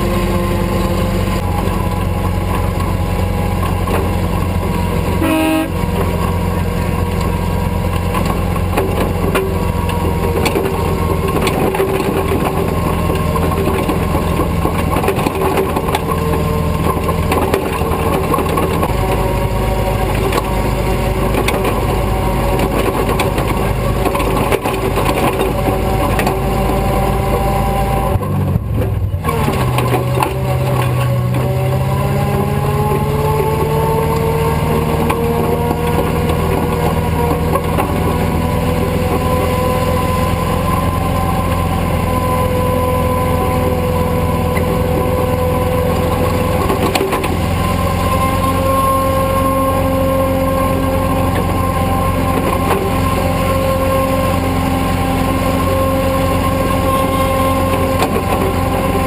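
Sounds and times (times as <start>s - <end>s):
truck engine under load: 0.0s - 59.0s.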